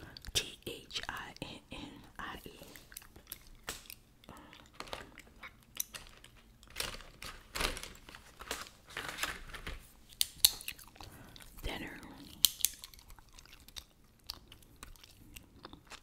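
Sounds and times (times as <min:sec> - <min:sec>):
gum being chewed: 0:02.6 - 0:06.7, 0:10.2 - 0:16.0
gum snapping: 0:02.9 - 0:04.0, 0:10.1 - 0:11.5, 0:12.3 - 0:16.0.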